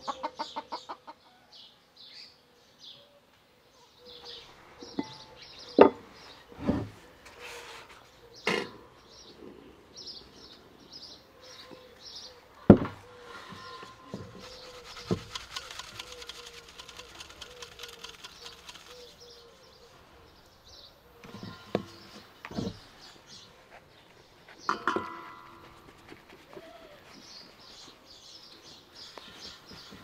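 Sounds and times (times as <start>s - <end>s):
small birds chirping: 3.8s - 30.0s
flour sifting hiss: 13.3s - 19.7s.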